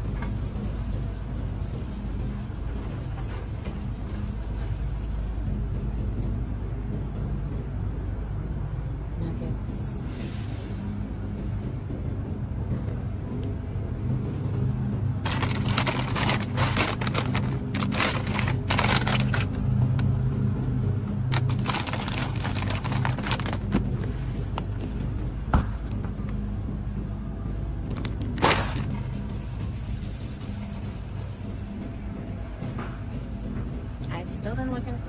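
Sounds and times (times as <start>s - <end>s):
plastic bag crinkling: 15.2s - 19.6s, 21.3s - 24.0s
rustling and rattling handling: 15.2s - 19.6s, 21.3s - 24.1s.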